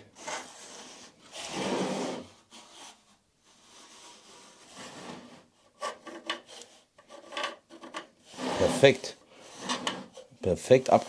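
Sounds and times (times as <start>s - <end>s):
wooden drum scraping on workbench: 0.2s - 3.0s, 3.8s - 10.3s.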